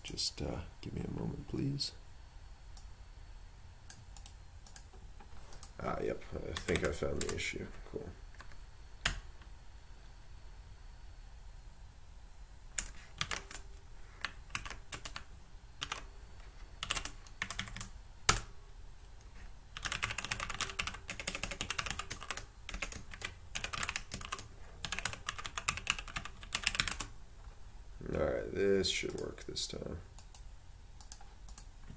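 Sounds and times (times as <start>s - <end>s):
typing on a computer keyboard: 6.5s - 7.4s, 12.8s - 16.0s, 16.8s - 18.5s, 19.8s - 27.1s, 31.0s - 31.7s.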